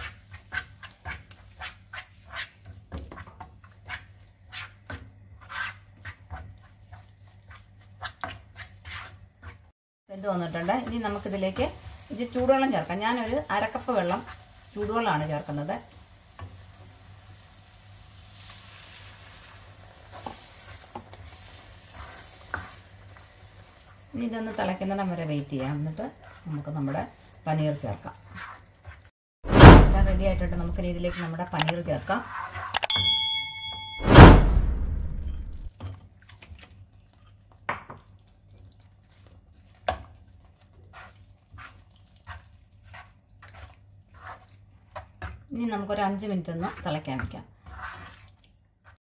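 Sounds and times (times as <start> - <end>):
spatula scraping a pan: 0.0 - 9.6, 18.4 - 23.9, 25.5 - 27.3, 27.9 - 29.1, 32.1 - 32.7, 39.0 - 45.4, 47.5 - 49.0
masala sizzling in a pan: 0.0 - 29.1, 37.3 - 49.0
loud rushing burst: 29.5 - 31.1, 34.0 - 35.7.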